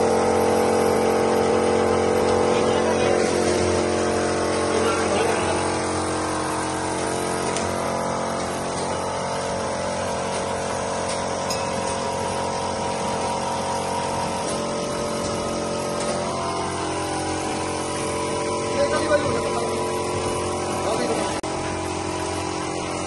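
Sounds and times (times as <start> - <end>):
bottle-filling machine motor hum: 0.0 - 23.0.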